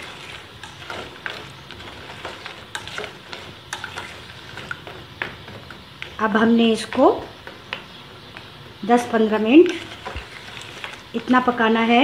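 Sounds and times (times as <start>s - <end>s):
metal spoon scraping saucepan: 9.6s - 11.5s.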